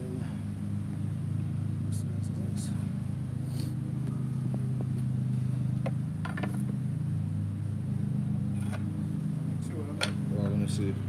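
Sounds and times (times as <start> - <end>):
machine humming: 0.0 - 11.0.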